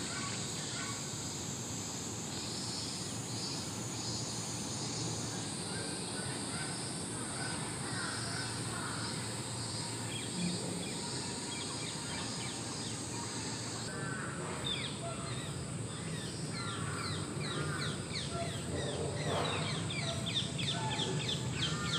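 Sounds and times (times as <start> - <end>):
steady high-pitched hiss: 0.0 - 21.9
birds chirping: 14.5 - 21.9.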